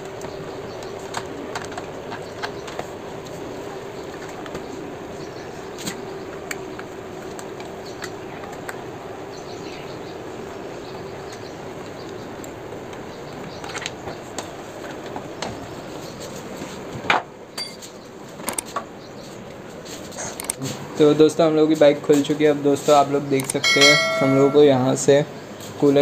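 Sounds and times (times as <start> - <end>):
hand tools clicking and tapping: 23.4 - 24.7.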